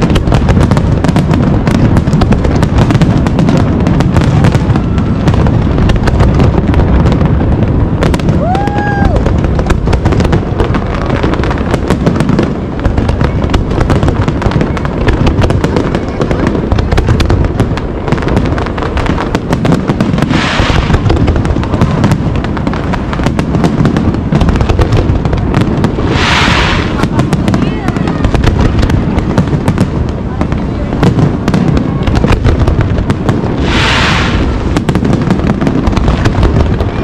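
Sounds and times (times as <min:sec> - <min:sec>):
firework bangs and crackling: 0:00.0 - 0:37.0
firework whistle: 0:08.1 - 0:09.5, 0:20.2 - 0:21.0, 0:25.9 - 0:28.4, 0:33.6 - 0:34.8.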